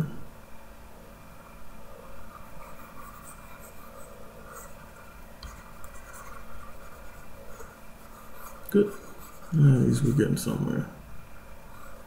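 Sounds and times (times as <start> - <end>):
stylus scratching on tablet: 1.9 - 10.6, 11.5 - 12.0.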